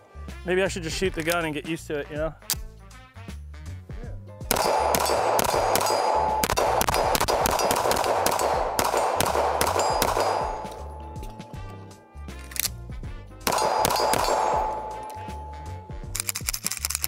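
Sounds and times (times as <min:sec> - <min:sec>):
pistol shots: 0:04.5 - 0:11.6, 0:13.4 - 0:16.2
steel targets ringing: 0:04.5 - 0:11.7, 0:13.5 - 0:16.1.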